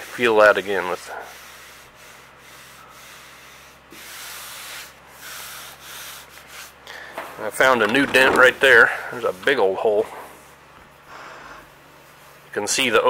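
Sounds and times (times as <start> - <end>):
palm rubbing steel panel: 5.3 - 10.4.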